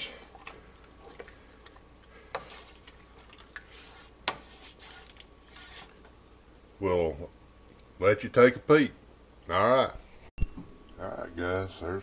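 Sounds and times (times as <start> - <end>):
spoon stirring thick stew: 0.2 - 6.1.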